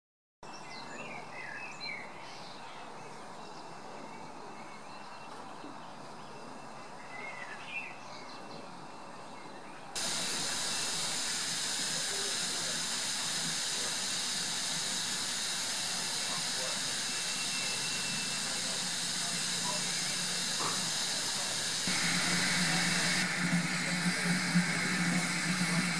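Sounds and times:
birds chirping: 0:00.8 - 0:23.6
steam hissing from locomotive: 0:10.0 - 0:25.9.

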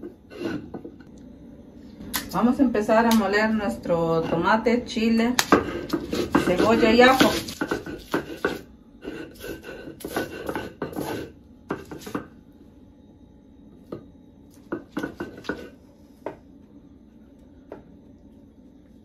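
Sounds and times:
stone roller grinding on stone slab: 0:00.0 - 0:00.9, 0:05.5 - 0:12.2.

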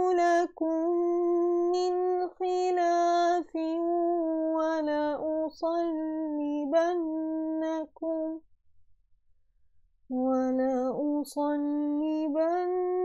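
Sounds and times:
woman reciting in melodic chant: 0:00.0 - 0:08.4.

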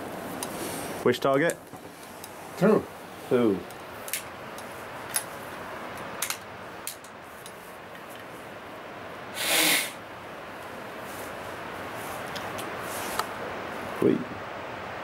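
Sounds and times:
loud hiss: 0:09.2 - 0:10.0.

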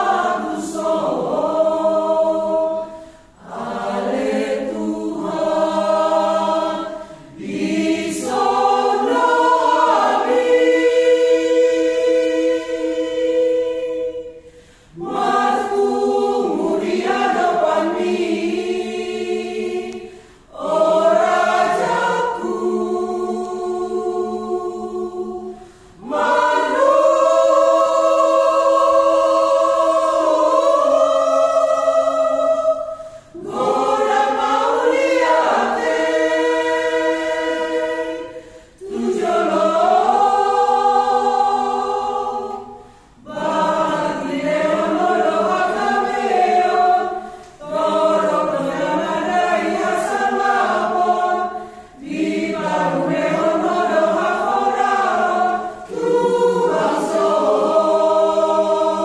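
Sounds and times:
choir singing in harmony: 0:00.0 - 0:59.0.

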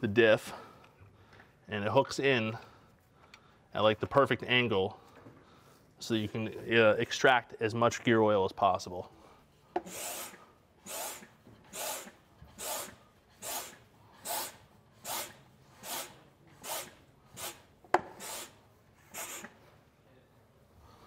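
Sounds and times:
hand pump rasping whoosh: 0:09.8 - 0:19.6.

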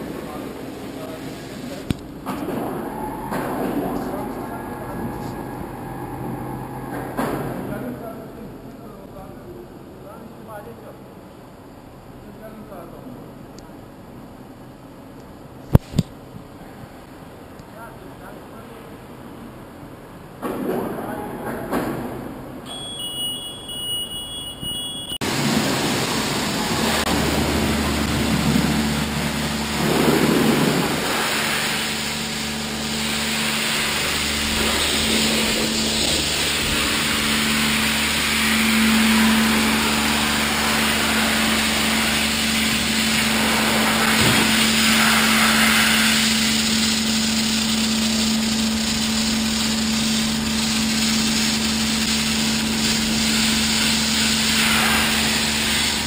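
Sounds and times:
pump motor hum: 0:25.2 - 0:56.0
pressure washer spray hiss: 0:25.3 - 0:56.0.

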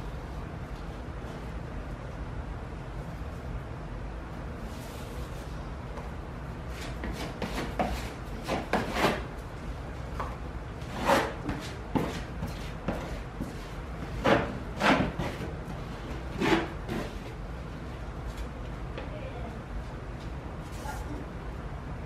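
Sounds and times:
scraper on drywall: 0:06.7 - 0:09.3, 0:10.8 - 0:17.4.

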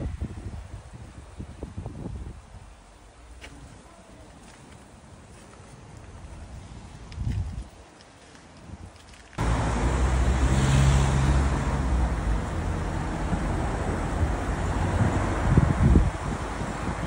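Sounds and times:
motor vehicle passing close: 0:09.4 - 0:17.0.

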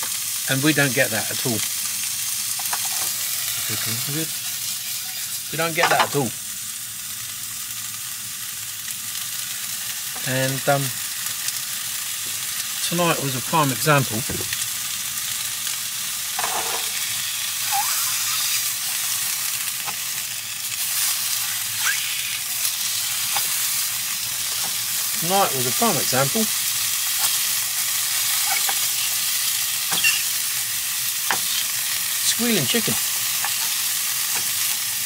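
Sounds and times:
chicken sizzling in a frying pan: 0:00.0 - 0:35.0
wavering squeal: 0:17.6 - 0:18.6, 0:21.8 - 0:22.4.

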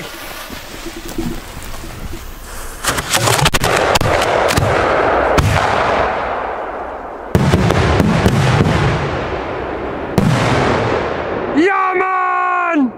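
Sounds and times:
fireworks crackling: 0:00.0 - 0:11.6
fireworks booming: 0:02.4 - 0:11.6
rolling echo: 0:03.0 - 0:11.6.

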